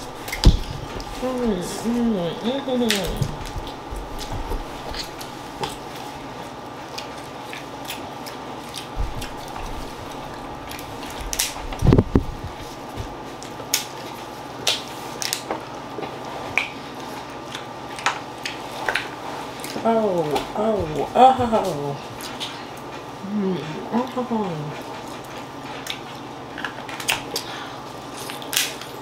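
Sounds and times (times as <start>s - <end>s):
faint hum: 0.0s - 13.9s, 16.0s - 26.0s
crunching and chewing: 2.9s - 19.8s, 22.0s - 23.2s, 24.8s - 29.0s
crab shells cracking: 28.2s - 29.0s.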